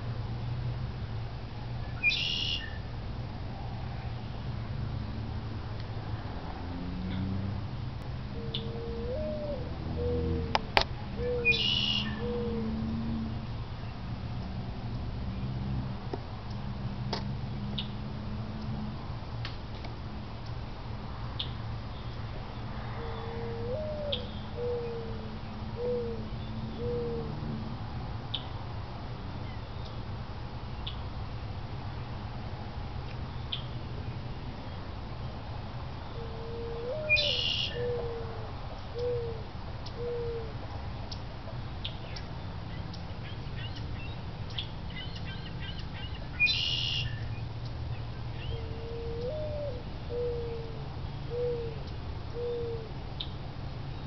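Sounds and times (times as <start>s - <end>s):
harsh bird squawk: 2.0s - 2.8s, 11.2s - 12.6s, 36.7s - 38.2s, 44.9s - 47.2s
low hooting call: 8.3s - 13.4s, 22.9s - 27.6s, 36.1s - 40.6s, 48.3s - 53.0s
mourning dove cooing: 8.3s - 13.4s, 22.8s - 27.7s, 36.1s - 40.7s, 48.4s - 53.0s
birds chirping: 11.2s - 12.7s, 36.1s - 38.2s, 41.8s - 53.4s.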